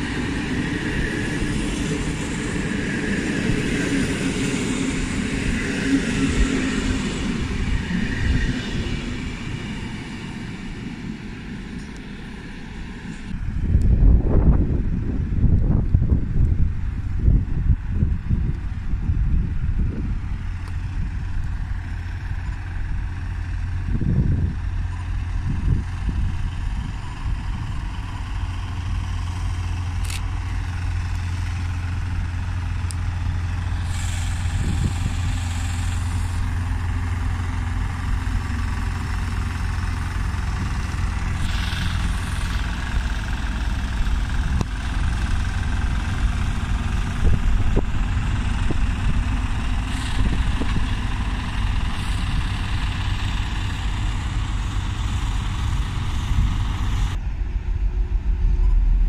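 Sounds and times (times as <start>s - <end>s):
heavy engine idling: 0.0s - 59.0s
brief hisses: 33.8s - 36.6s.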